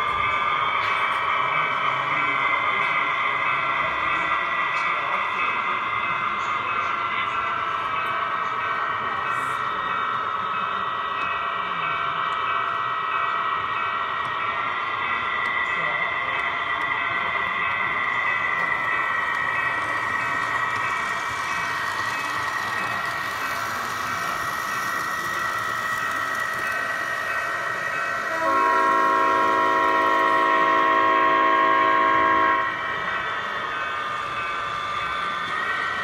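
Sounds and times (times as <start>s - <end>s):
locomotive horn blast: 28.3s - 32.8s.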